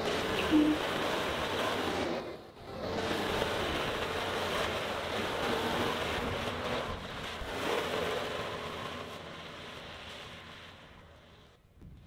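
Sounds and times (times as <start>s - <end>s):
diesel engine running: 0.0s - 11.6s.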